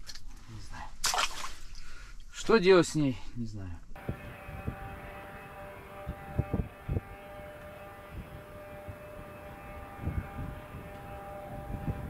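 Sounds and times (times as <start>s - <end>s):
distant vehicle engines droning: 4.0s - 12.0s
wind buffeting microphone: 4.0s - 12.0s.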